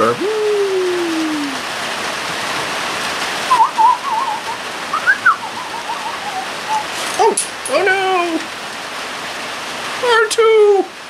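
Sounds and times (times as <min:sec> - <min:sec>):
steady hiss: 0:00.0 - 0:11.0
warbling robot beeps and whistles: 0:03.5 - 0:07.0.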